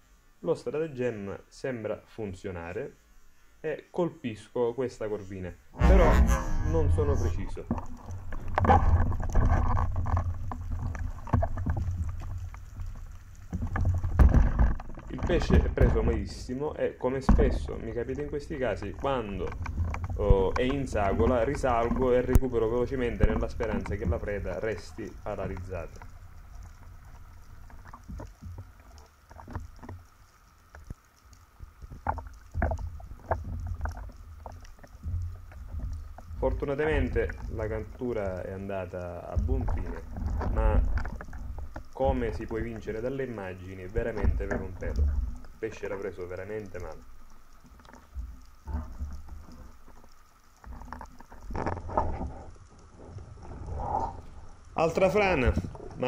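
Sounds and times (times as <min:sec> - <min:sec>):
underwater water rushing: 0:05.7 - 0:56.0
sharp clicks and knocks: 0:07.6 - 0:16.2.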